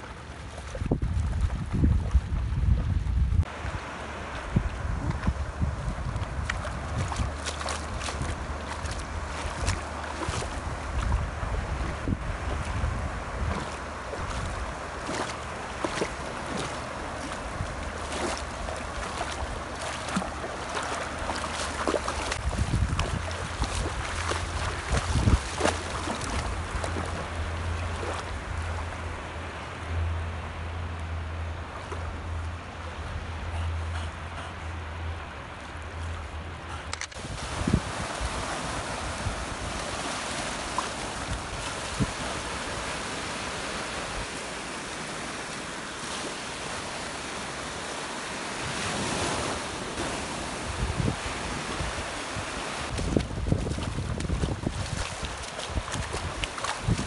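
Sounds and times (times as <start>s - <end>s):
gentle sea lapping: 0.0s - 57.0s
low wind rumble on microphone: 0.0s - 57.0s
small waves breaking on sand: 3.4s - 33.0s, 34.9s - 57.0s
dogs splashing in water: 6.0s - 28.8s, 36.8s - 48.0s, 48.6s - 57.0s.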